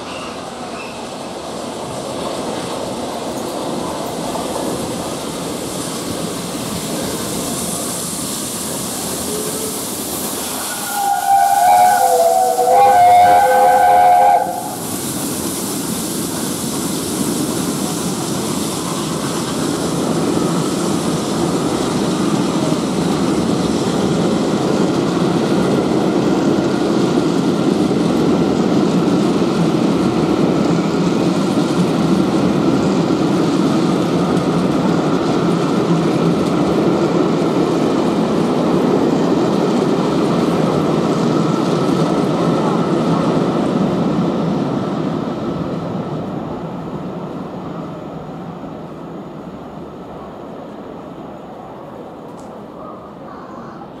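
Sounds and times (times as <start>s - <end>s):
train coaches rumbling past: 0.0s - 54.0s
steam whistle blasts: 10.5s - 14.8s.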